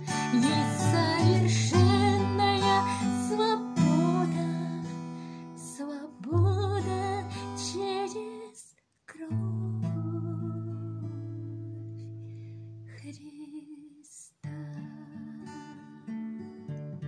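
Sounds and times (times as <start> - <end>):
acoustic guitar strumming: 0.0 - 5.6.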